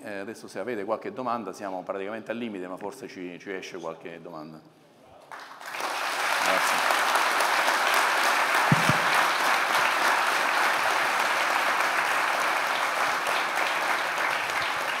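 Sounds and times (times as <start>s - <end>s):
audience applauding: 5.3s - 15.0s
low thumps: 8.7s - 9.2s.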